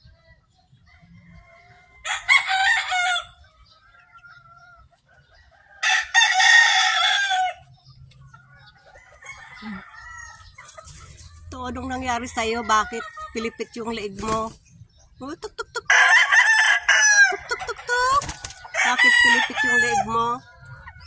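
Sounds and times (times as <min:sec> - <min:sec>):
chicken calls: 0:00.0 - 0:21.0
rooster crowing: 0:01.0 - 0:03.4, 0:05.6 - 0:07.6, 0:09.0 - 0:10.5, 0:15.9 - 0:20.3.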